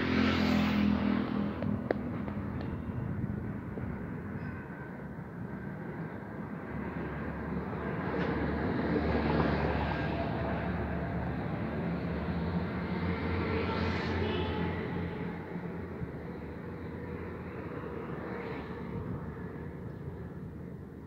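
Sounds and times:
vehicle passing by: 0.0 - 2.5
road traffic rumble: 0.0 - 21.0.

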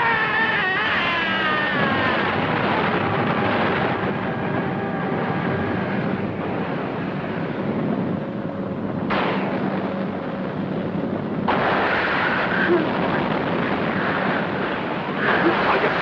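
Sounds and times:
rumble of fire and explosions: 0.0 - 16.0.

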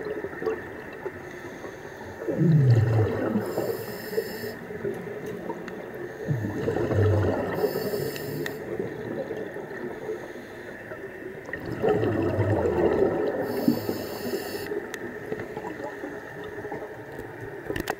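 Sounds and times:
underwater watery wash: 0.0 - 17.9
exhaled bubbles: 2.2 - 5.6, 6.2 - 10.2, 11.4 - 14.4
diver breathing through regulator: 3.4 - 4.6, 7.5 - 8.7, 13.4 - 14.8.

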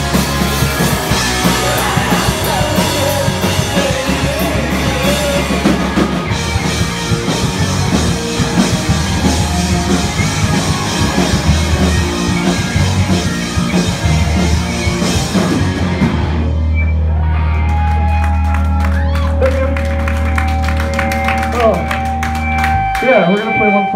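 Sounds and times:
drum kit: 0.0 - 16.8
bass guitar: 0.0 - 23.9
distorted electric guitars: 0.0 - 23.9.

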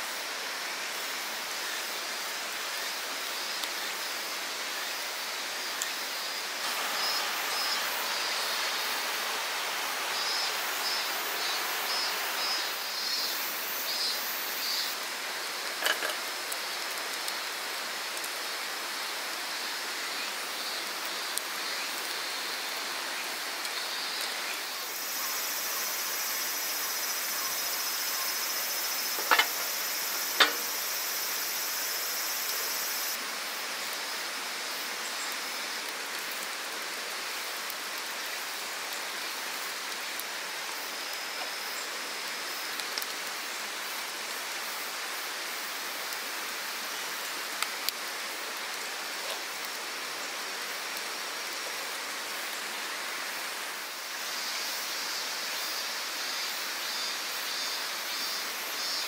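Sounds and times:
high steady hiss: 0.0 - 59.0
river rushing: 4.1 - 16.6
camping gear clicks and knocks: 15.8 - 16.2, 29.2 - 30.8.

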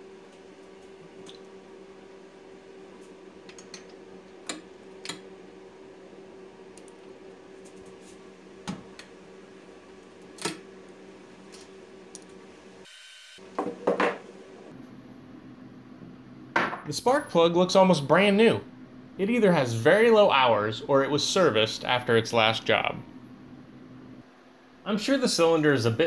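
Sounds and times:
steady low hum: 13.6 - 26.0.

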